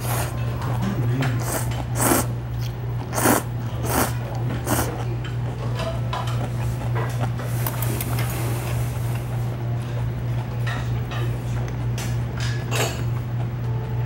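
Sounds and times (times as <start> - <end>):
noodles being slurped: 0.0 - 5.6
quiet chewing: 0.0 - 13.8
steady low hum: 0.0 - 14.0.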